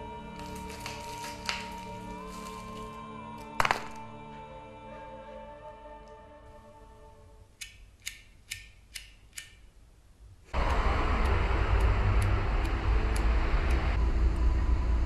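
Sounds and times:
music: 0.0 - 7.8, 11.8 - 14.0
street traffic rumble: 10.5 - 15.0
sharp ticking: 10.6 - 14.5.

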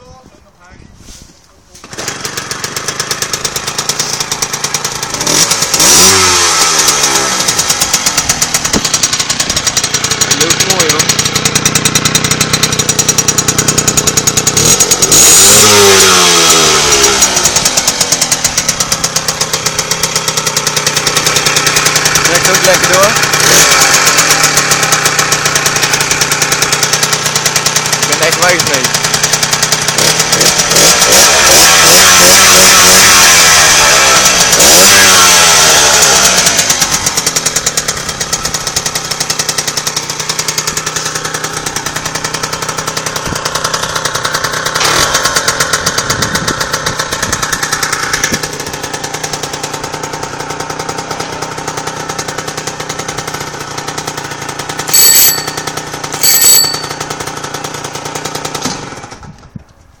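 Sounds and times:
moped engine revving and idling: 1.6 - 60.0
high-pitched beeps: 55.0 - 55.6.

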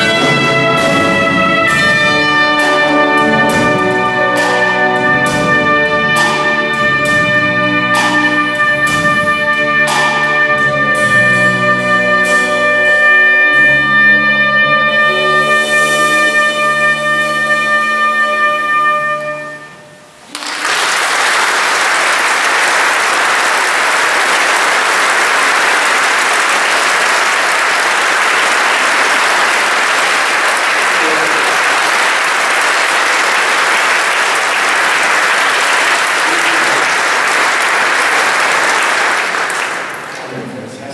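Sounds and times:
trumpet and orchestra note: 0.0 - 20.6
audience applause: 20.3 - 40.8.

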